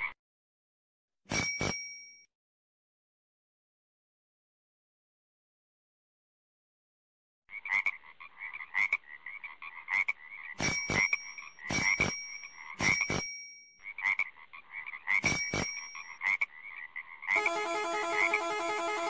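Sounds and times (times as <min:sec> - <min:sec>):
frog croaking: 0:07.5 - 0:10.6, 0:13.8 - 0:15.3, 0:16.1 - 0:17.4.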